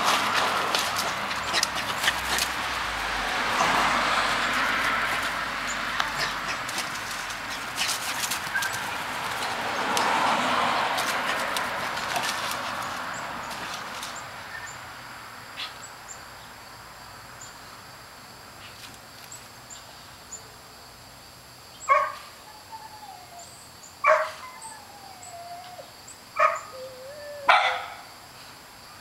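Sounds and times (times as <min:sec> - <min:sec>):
puppy barking: 0:21.9 - 0:22.3, 0:24.0 - 0:24.5, 0:26.4 - 0:26.8, 0:27.4 - 0:28.0
puppy whimpering: 0:26.4 - 0:27.8.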